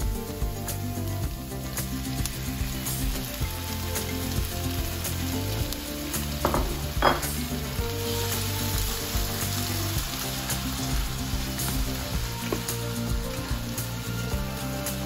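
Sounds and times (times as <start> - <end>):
onions and tomatoes sizzling: 0.0 - 15.0.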